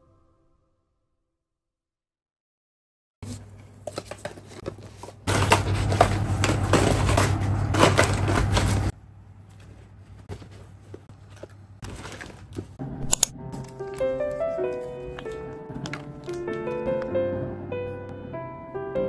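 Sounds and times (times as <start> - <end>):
packaged items rustling and crinkling: 3.3 - 12.8, 13.6 - 17.2.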